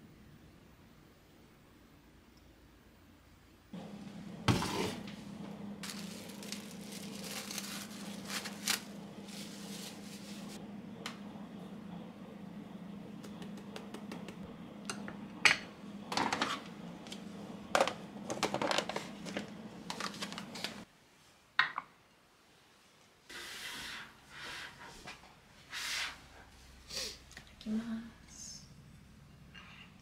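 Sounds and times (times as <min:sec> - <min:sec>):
steady low hum: 0:03.1 - 0:20.9
soft rustles: 0:05.8 - 0:10.6.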